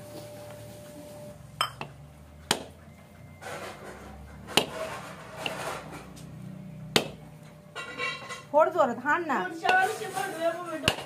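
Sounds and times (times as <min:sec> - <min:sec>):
coconut knocking on stone: 0:06.9 - 0:07.2.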